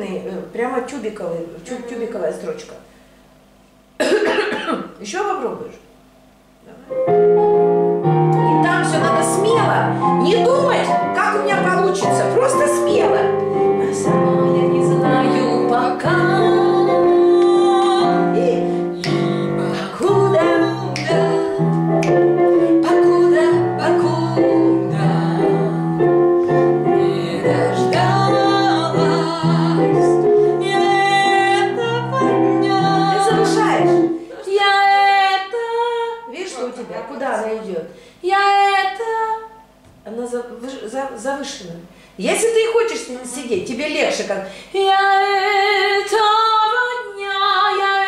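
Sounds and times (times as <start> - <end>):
piano accompaniment: 6.9 - 35.3
woman singing pop ballad: 13.8 - 21.8, 22.4 - 26.0, 26.8 - 36.3.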